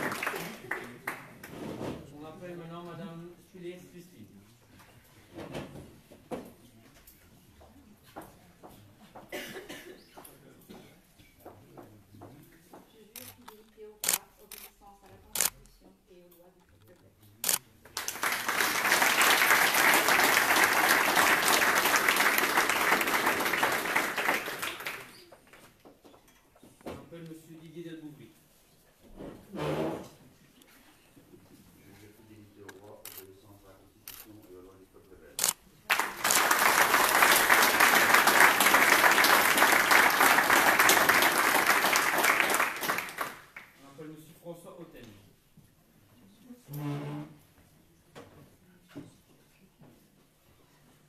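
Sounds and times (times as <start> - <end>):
crowd applauding: 0.0 - 1.5, 18.0 - 25.3, 35.9 - 43.8.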